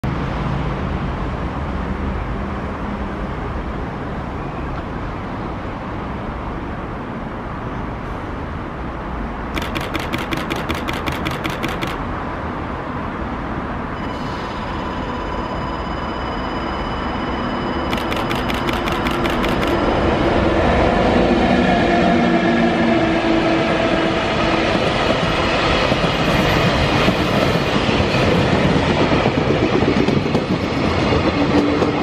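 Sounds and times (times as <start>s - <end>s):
rapid high-pitched ringing pulses: 9.6s - 12.0s, 14.0s - 20.5s
steady high tone: 14.0s - 22.1s
wind on microphone: 24.2s - 32.0s.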